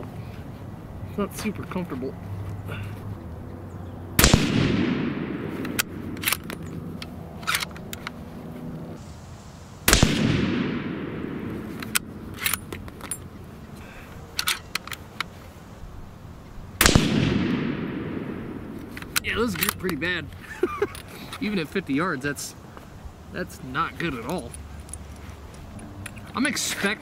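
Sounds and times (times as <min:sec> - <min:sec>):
rifle shots with echo: 0:04.2 - 0:06.4, 0:09.9 - 0:11.9, 0:16.8 - 0:19.0
rifle bolt metallic clicks: 0:04.2 - 0:08.2, 0:09.9 - 0:13.4, 0:14.2 - 0:15.3, 0:16.8 - 0:21.4, 0:24.2 - 0:27.0.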